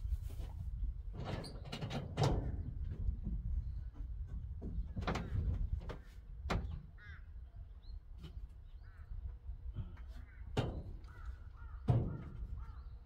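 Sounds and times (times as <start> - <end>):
crow cawing: 7.0 - 7.3, 11.1 - 12.8
sharp knocks and clatters: 9.9 - 12.7.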